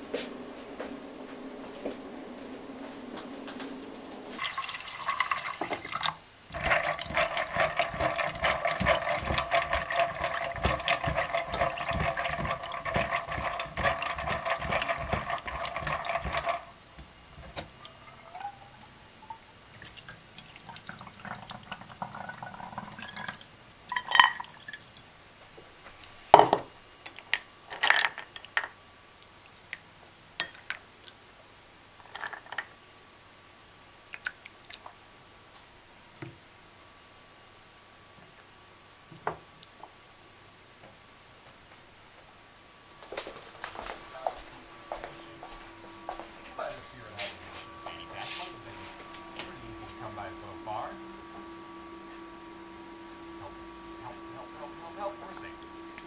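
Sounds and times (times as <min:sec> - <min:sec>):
tap water running into strainer: 0:04.4 - 0:17.9, 0:19.6 - 0:25.0
bowl and dishes clinking: 0:23.9 - 0:24.6.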